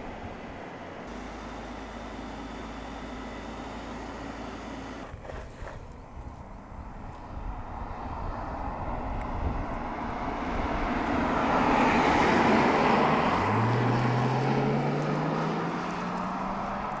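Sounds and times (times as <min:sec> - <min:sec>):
car driving past: 0:09.8 - 0:17.0.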